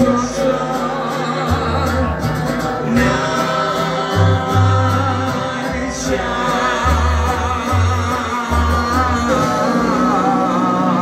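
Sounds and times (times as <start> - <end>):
heavy metal band playing loud: 0.0 - 11.0
long strong bass notes: 0.0 - 11.0
man singing: 0.0 - 11.0.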